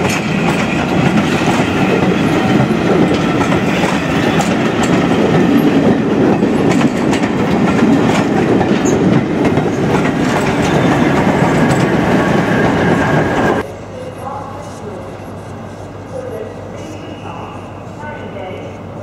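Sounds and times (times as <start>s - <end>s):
wheels clicking over rail joints: 0.0s - 12.2s
train wheels rumbling on track: 0.0s - 13.7s.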